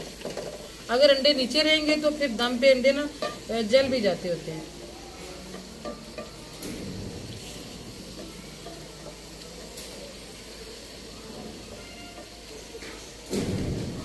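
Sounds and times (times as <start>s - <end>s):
masala sizzling in a pot: 0.0s - 14.0s.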